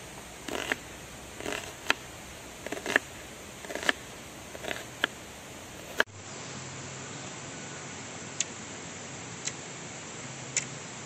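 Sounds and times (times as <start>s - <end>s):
knife slicing through onion: 0.4s - 5.2s.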